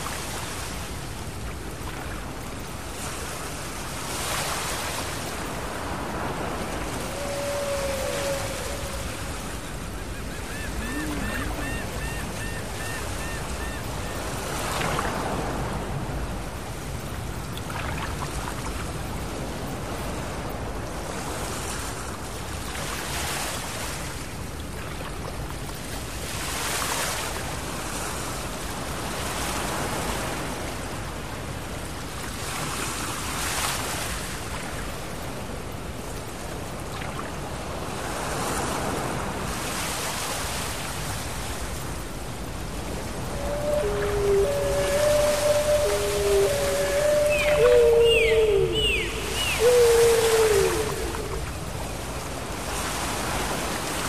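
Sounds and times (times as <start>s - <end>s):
ocean surf breaking on beach: 0.0s - 54.0s.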